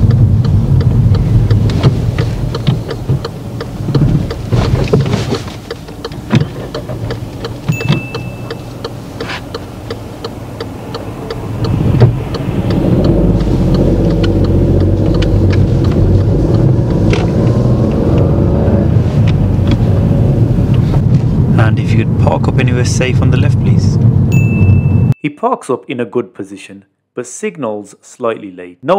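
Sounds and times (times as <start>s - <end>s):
car turn indicator ticking: 0.0s - 20.8s
car engine revving: 0.0s - 24.4s.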